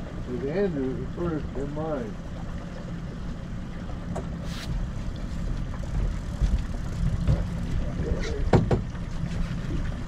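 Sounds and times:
boat motor rumbling: 0.0s - 10.0s
wind and water noise: 0.0s - 10.0s
sharp knocks: 8.5s - 8.9s.

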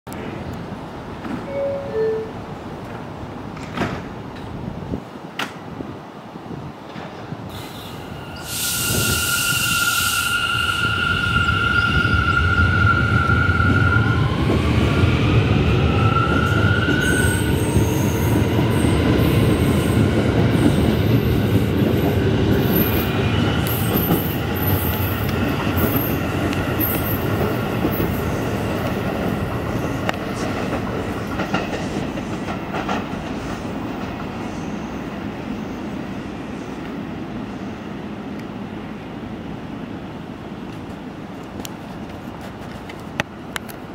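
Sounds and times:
subway train whine: 0.1s - 43.9s
clacks over rail joints: 2.8s - 4.6s, 28.8s - 34.4s.

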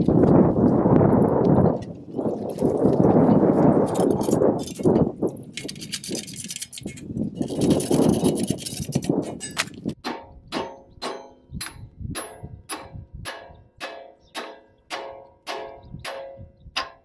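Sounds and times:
hammer striking metal pulley: 9.3s - 17.0s.

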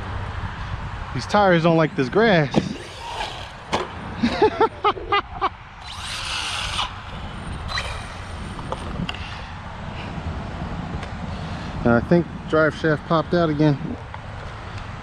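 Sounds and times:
low outdoor rumble: 0.0s - 14.5s
electric motor whining: 2.6s - 4.0s, 5.8s - 9.5s.

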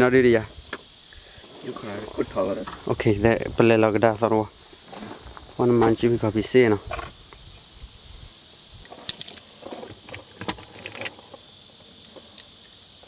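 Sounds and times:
steady high hiss: 0.0s - 13.0s.

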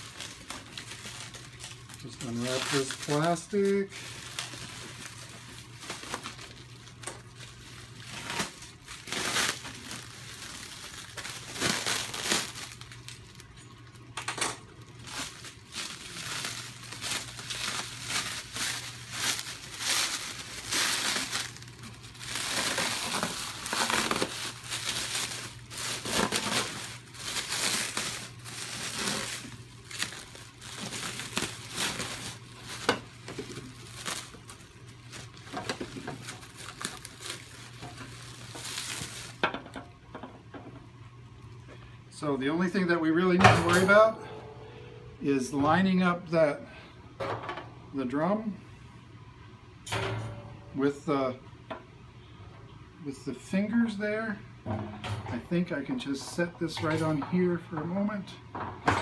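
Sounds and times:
plastic wrap crinkling: 0.0s - 40.2s.

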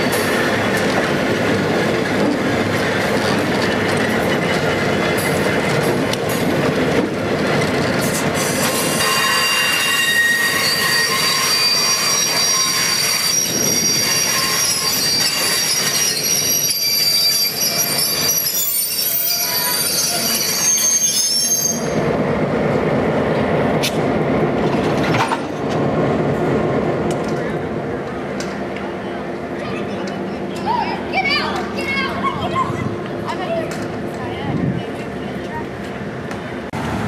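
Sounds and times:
train wheels squealing on rails: 0.0s - 0.8s, 8.0s - 22.1s
train cars rumbling over track: 0.0s - 37.0s.

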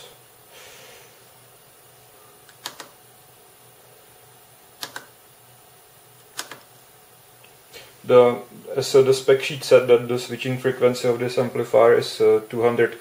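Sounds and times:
faint steady hum: 0.0s - 13.0s
push-buttons clicking: 2.5s - 3.0s, 4.8s - 5.1s, 6.3s - 6.7s.

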